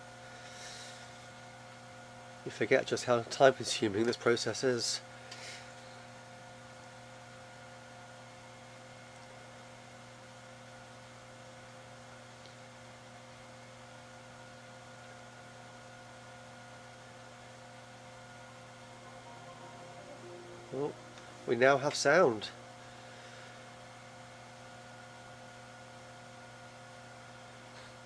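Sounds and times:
computer electrical hum: 0.0s - 27.7s.

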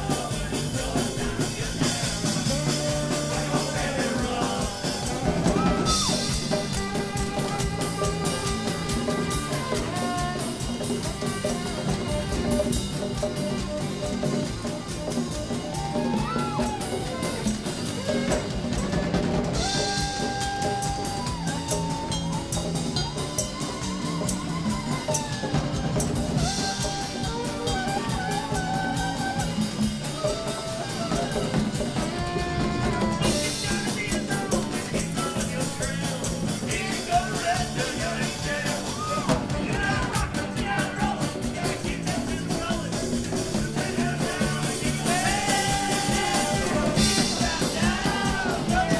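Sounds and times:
drum kit beat: 0.0s - 48.9s
guitar: 0.0s - 48.9s.

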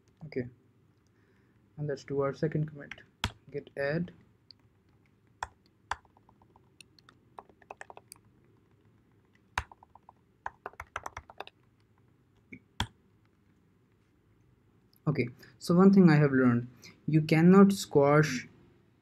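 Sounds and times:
typing on computer keyboard: 5.4s - 12.0s.

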